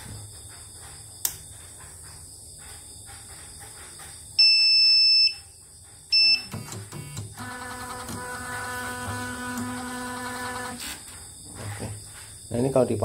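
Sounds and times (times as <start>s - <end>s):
electronic beeps: 6.1s - 6.5s
motor whine: 6.5s - 11.1s.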